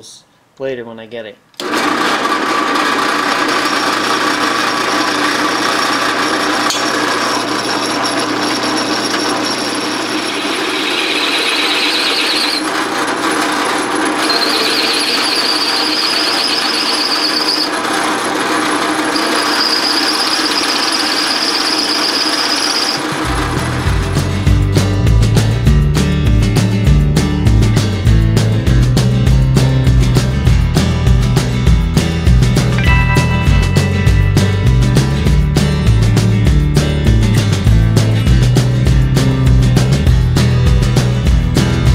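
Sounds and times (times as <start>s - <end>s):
drill press running: 1.6s - 24.4s
drill bit squealing: 3.4s - 13.4s, 14.2s - 18.1s, 18.8s - 23.3s.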